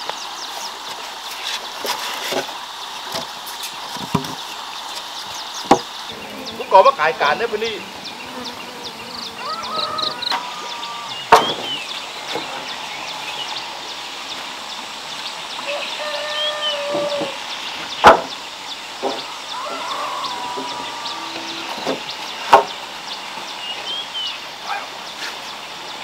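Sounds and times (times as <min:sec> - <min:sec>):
small birds chirping: 0:03.6 - 0:26.0
farm fowl calling: 0:06.0 - 0:14.0, 0:15.5 - 0:17.8, 0:19.0 - 0:23.1
wooden beams knocking: 0:11.3 - 0:11.8, 0:18.0 - 0:18.3.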